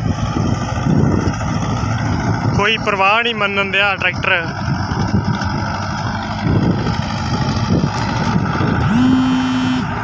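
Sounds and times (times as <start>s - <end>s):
tractor engine running under load: 0.0s - 10.0s
steady higher tone: 8.8s - 10.0s.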